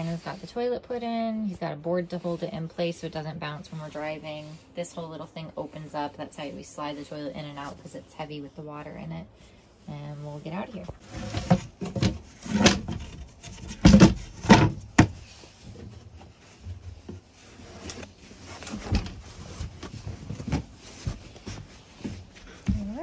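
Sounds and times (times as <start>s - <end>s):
wooden lid knocks and thumps: 11.2s - 15.2s.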